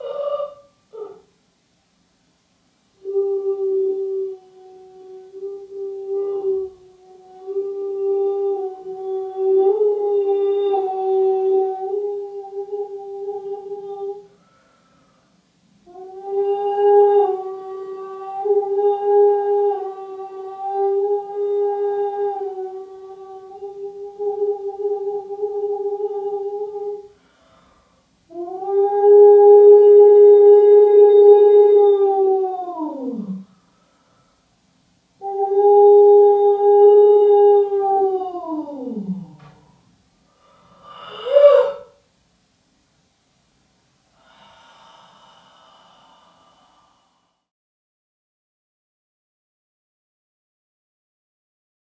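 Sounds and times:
voice holding long overtone note: 0:03.0 - 0:14.4, 0:15.9 - 0:27.7, 0:28.3 - 0:33.5, 0:40.8 - 0:42.0.

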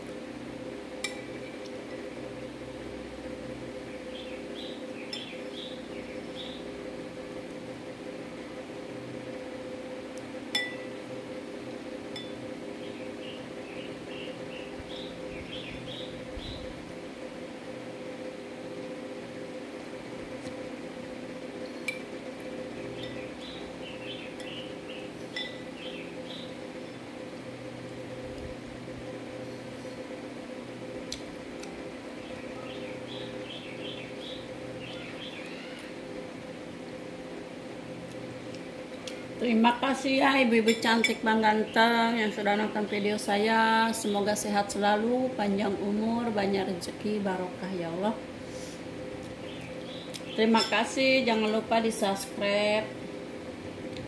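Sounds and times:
steady mechanical hum: 0:00.0 - 0:54.0
small birds chirping: 0:03.9 - 0:06.7, 0:12.7 - 0:16.8, 0:22.8 - 0:27.0, 0:32.1 - 0:36.0, 0:49.3 - 0:50.7
small bird chirping: 0:32.2 - 0:35.9.

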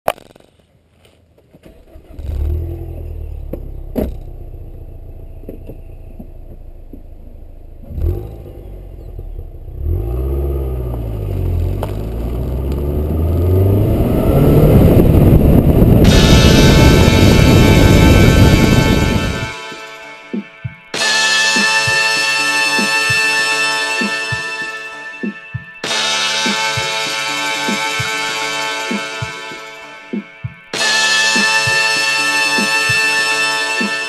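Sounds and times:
wind and road noise: 0:00.3 - 0:19.6
car engine starting and idling: 0:01.5 - 0:19.5
car accelerating: 0:01.7 - 0:19.5
music: 0:15.6 - 0:34.0.

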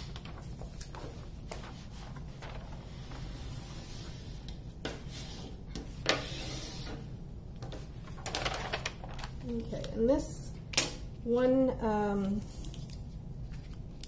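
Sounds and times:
paper sheet rustling: 0:00.0 - 0:07.0, 0:07.6 - 0:10.1.

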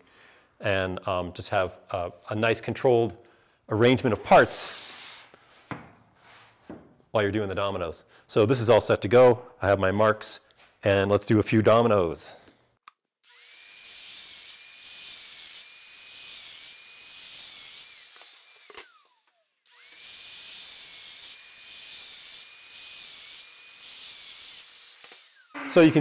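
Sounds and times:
power joiner motor whining: 0:14.9 - 0:26.0.

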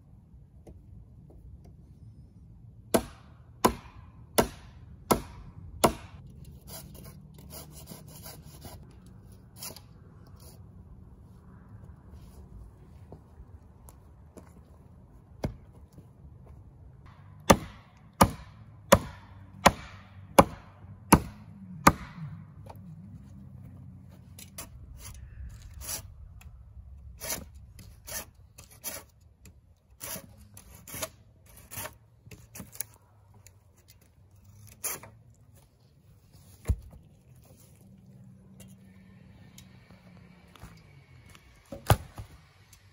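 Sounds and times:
blade chopping wood: 0:02.9 - 0:06.2, 0:17.4 - 0:22.3.

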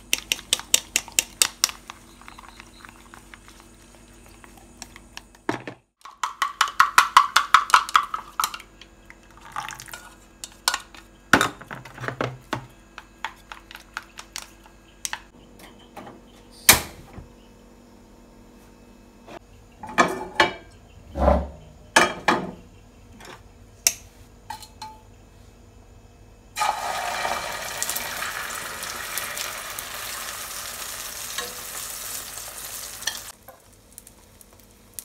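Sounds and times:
chopsticks beating eggs in bowl: 0:00.0 - 0:05.4.

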